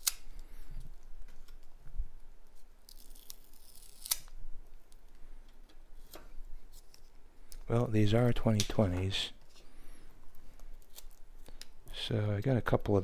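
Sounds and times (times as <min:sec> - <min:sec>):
tape cutting and plastic crinkling: 0:00.0 - 0:00.4, 0:02.8 - 0:04.4, 0:10.6 - 0:11.7.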